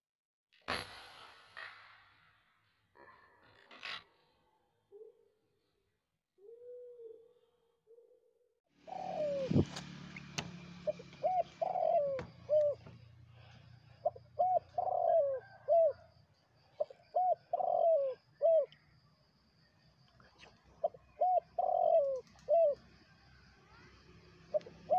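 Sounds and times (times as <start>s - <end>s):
dove cooing: 4.9s - 5.3s, 6.4s - 16.2s, 16.8s - 18.8s, 20.8s - 22.8s, 24.5s - 24.9s.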